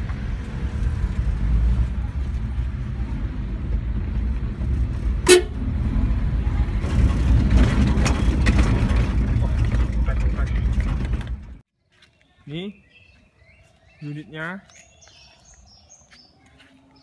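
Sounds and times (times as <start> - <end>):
engine and road rumble in cab: 0.0 - 11.7
short horn toot: 5.2 - 5.6.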